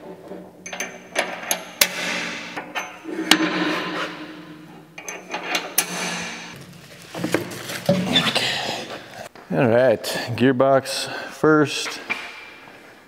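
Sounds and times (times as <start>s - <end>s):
metal rubbing and scraping: 0.0s - 9.3s
sharp metal clicks and knocks: 0.6s - 6.6s.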